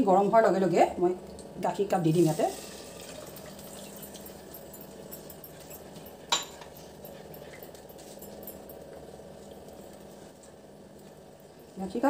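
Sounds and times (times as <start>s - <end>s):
low background hum: 0.0s - 12.0s
kitchenware clink: 3.0s - 8.8s.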